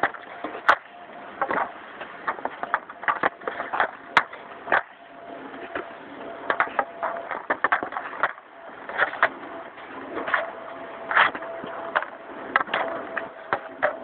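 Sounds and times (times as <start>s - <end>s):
hockey stick hitting pucks: 0.0s - 5.0s, 6.5s - 9.4s, 11.1s - 14.0s.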